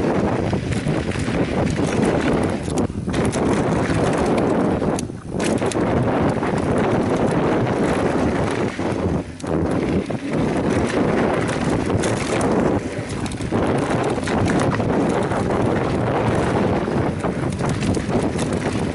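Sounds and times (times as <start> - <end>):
bike rattling over bumpy ground: 0.0 - 18.9
wind buffeting microphone: 0.0 - 18.9.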